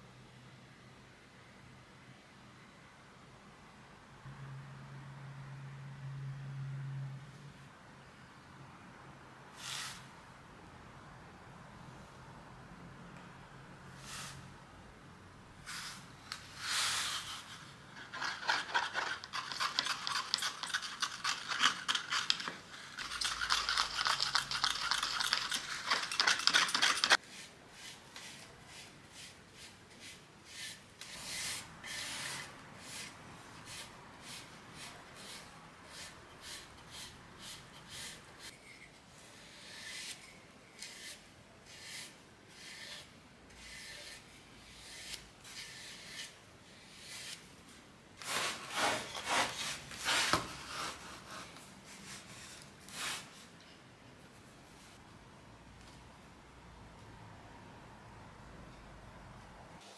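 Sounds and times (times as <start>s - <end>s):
spatula scraping paint in a cup: 16.7s - 47.4s.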